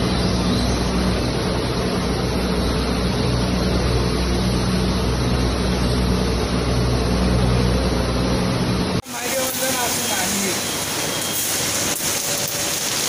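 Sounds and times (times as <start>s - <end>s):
machinery drone: 0.0s - 13.0s.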